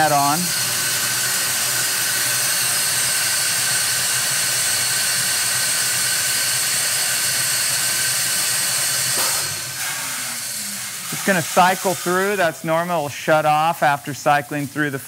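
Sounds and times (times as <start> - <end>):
coffee bean lift rushing hiss: 0.0 - 15.0.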